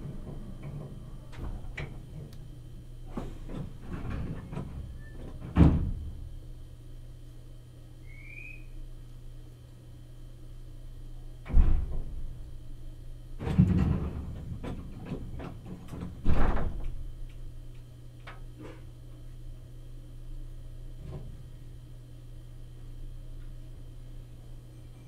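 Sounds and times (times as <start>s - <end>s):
train car interior hum: 0.0s - 25.0s
loud knocks with clattering: 3.2s - 6.0s, 11.5s - 12.2s, 13.4s - 16.9s.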